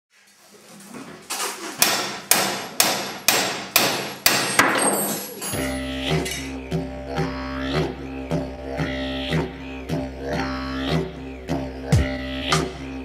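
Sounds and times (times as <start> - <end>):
low droning pulsing music: 5.6 - 13.0.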